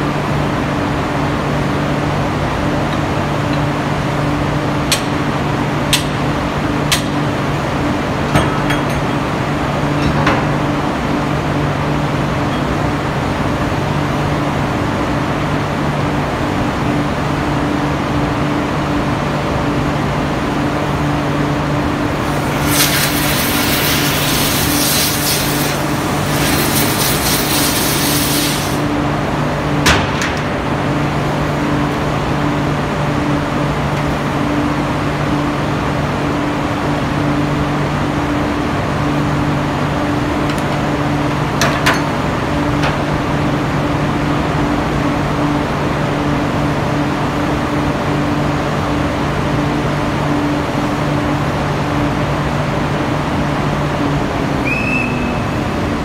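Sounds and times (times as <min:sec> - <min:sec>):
machinery hum: 0:00.0 - 0:56.0
hiss: 0:22.2 - 0:29.0.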